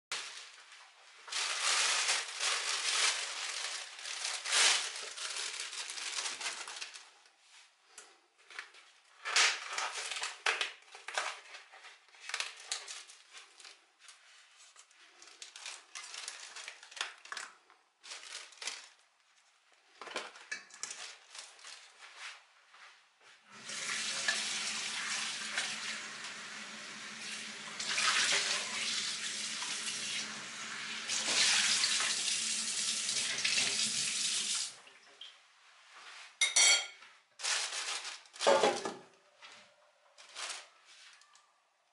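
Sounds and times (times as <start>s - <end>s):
plastic bag crinkling: 0.1s - 7.5s, 8.5s - 22.5s, 37.4s - 38.9s, 40.1s - 41.4s
running tap water: 23.5s - 35.1s.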